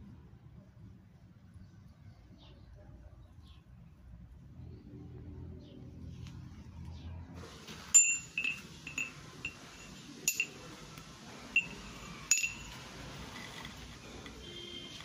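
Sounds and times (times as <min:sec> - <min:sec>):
steel rebar clinking against metal: 0:07.8 - 0:10.8, 0:11.5 - 0:13.6.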